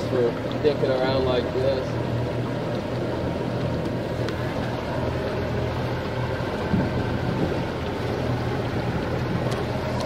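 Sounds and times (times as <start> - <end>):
outboard motor running: 0.0 - 10.0
water rushing: 0.0 - 10.0
wind noise: 6.6 - 7.7.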